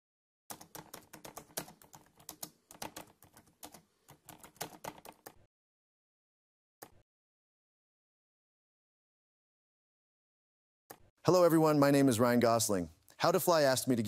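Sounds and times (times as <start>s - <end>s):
typing on computer keyboard: 0.5s - 5.5s.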